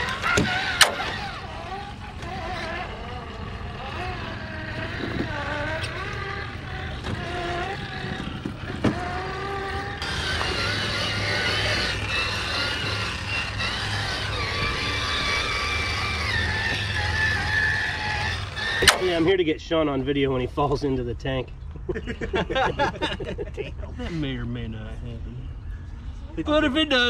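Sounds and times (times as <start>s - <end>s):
electric motor whining: 0.0s - 19.4s
higher whine: 0.0s - 19.4s.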